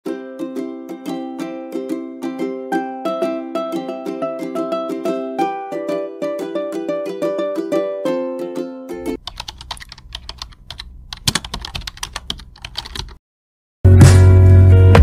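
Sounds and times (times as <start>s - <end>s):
plucked ukulele music: 0.0s - 9.2s
keyboard typing clicks: 9.2s - 13.2s
loud music with heavy bass: 13.9s - 15.0s.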